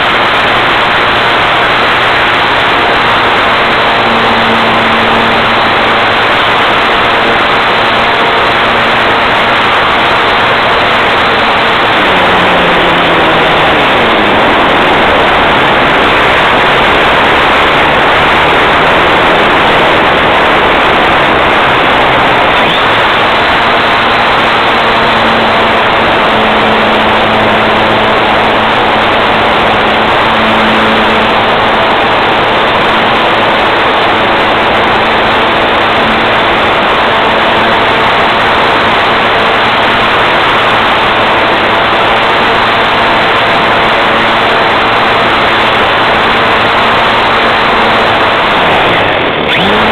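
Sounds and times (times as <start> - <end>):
airflow rushing: 0.0 - 42.4
propeller motor hum: 0.0 - 49.9.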